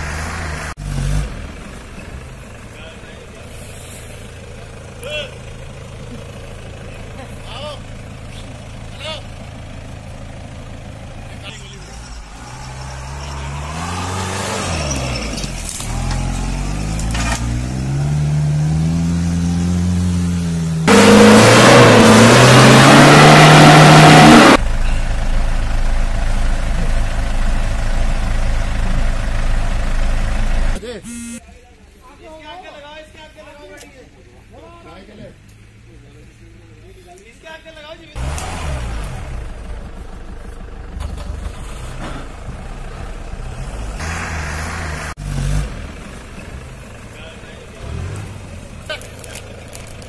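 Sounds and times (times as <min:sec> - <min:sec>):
diesel engine revving hard: 0:00.0 - 0:02.3, 0:11.8 - 0:25.2, 0:38.2 - 0:39.8, 0:41.0 - 0:48.8.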